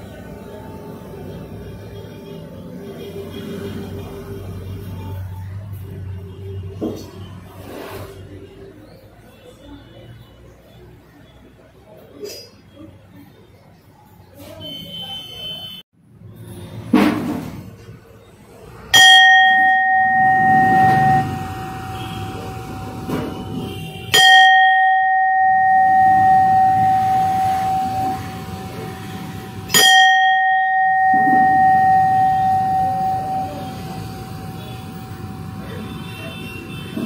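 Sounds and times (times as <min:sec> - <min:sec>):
bronze bell ringing: 0:19.0 - 0:23.1, 0:24.1 - 0:36.2.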